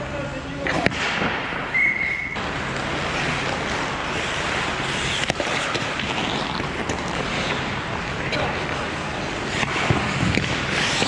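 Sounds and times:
sharp crack: 0.6s - 8.6s
skates scraping on ice: 2.4s - 11.0s.

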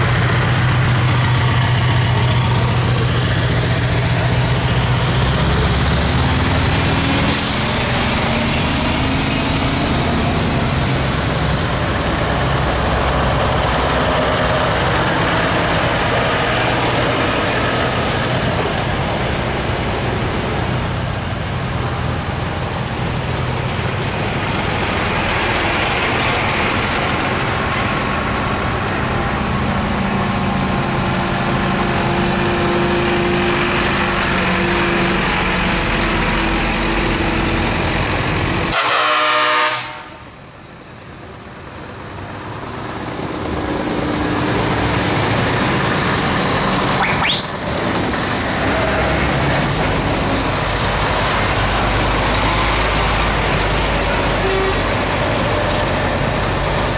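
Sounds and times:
diesel trucks driving past: 0.0s - 56.9s
truck horn blast: 38.7s - 40.3s, 54.3s - 55.0s.

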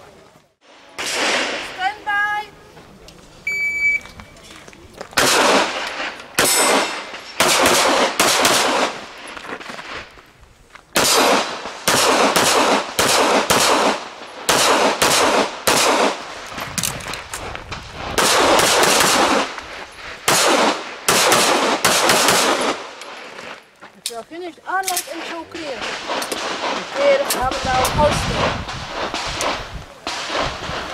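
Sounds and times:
echoing pistol shots: 1.0s - 1.8s, 5.2s - 9.1s, 11.0s - 16.4s, 18.1s - 19.6s, 20.2s - 23.0s, 25.1s - 30.9s.

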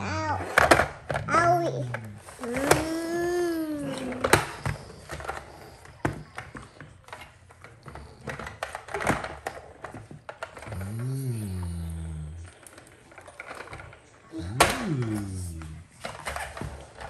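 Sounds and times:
short low voice: 10.7s - 12.5s, 14.3s - 15.9s.

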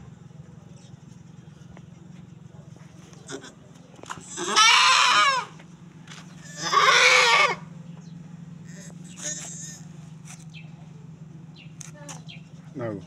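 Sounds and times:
goat bleating: 3.3s - 3.6s, 4.2s - 5.6s, 6.4s - 7.6s, 8.7s - 9.9s.

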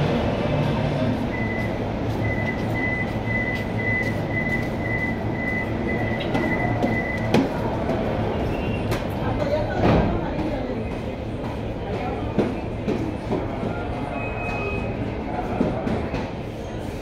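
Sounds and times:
low hum of stopped train: 0.0s - 17.0s
door-closing warning beeps: 1.3s - 7.5s, 14.1s - 15.0s.

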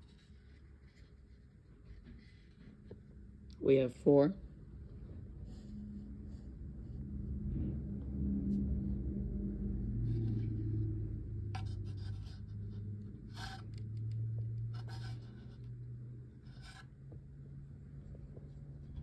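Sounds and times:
low steady hum: 0.0s - 19.0s
short scraping and rubbing: 10.0s - 17.1s.

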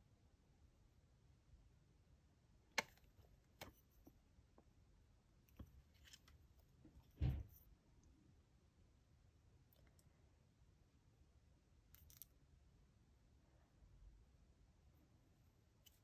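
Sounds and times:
dull thump: 7.1s - 7.6s.

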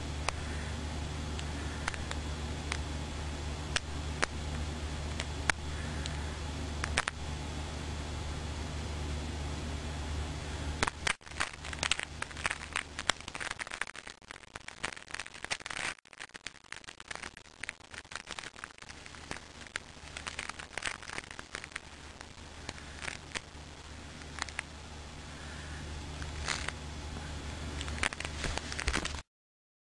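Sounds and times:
steady low hum: 0.0s - 29.2s
magnet spheres clicking: 1.3s - 2.8s, 3.7s - 6.2s, 6.8s - 7.3s, 10.8s - 24.8s, 26.2s - 26.8s, 27.7s - 29.2s.

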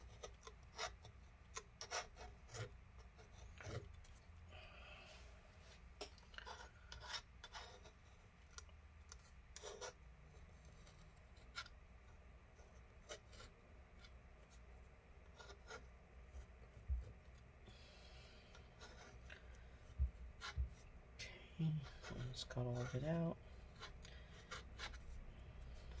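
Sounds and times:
scraping and rubbing on metal: 5.6s - 8.1s.

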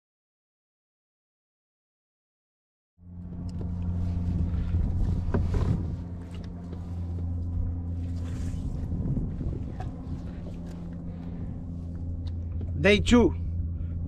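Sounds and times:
motor humming: 3.0s - 14.0s.

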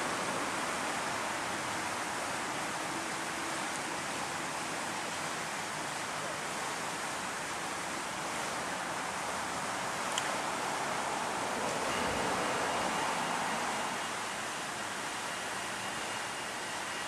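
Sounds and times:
city street rushing noise: 8.7s - 14.2s.

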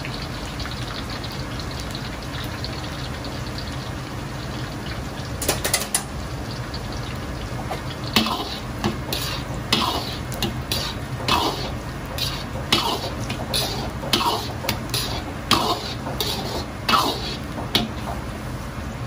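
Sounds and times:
frying sizzle: 0.0s - 19.0s
ladle scraping a wok: 8.1s - 18.2s.

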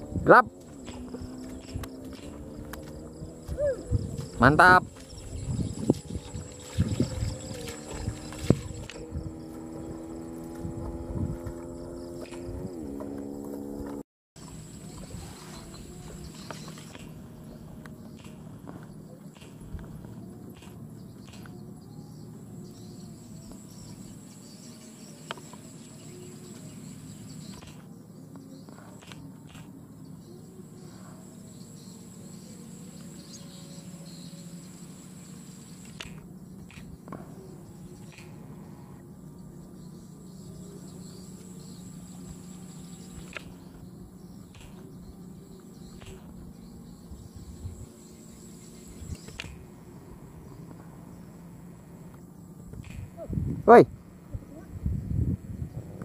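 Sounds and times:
crickets chirring: 0.0s - 56.0s
insects trilling: 0.0s - 56.0s
sharp click: 38.0s - 38.4s.

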